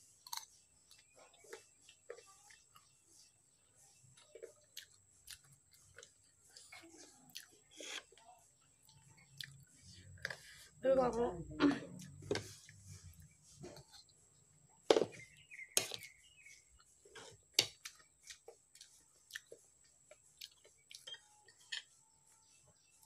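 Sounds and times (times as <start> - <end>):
chewing: 4.1 - 10.7, 16.8 - 21.9.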